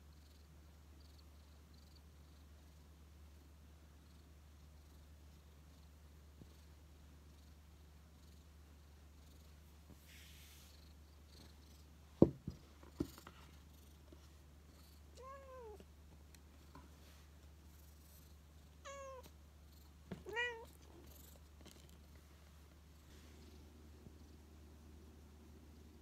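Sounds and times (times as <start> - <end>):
cat meowing: 18.8 - 19.3, 20.2 - 20.7.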